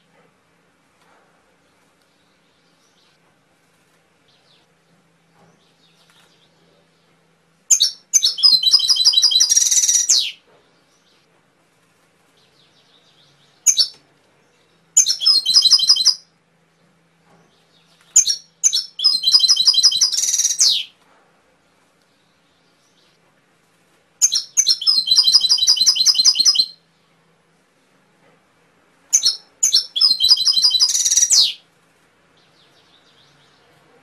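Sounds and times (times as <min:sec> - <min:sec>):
canary singing trills: 0:07.7 - 0:11.2, 0:12.4 - 0:16.3, 0:17.5 - 0:21.0, 0:24.2 - 0:26.9, 0:29.1 - 0:31.6.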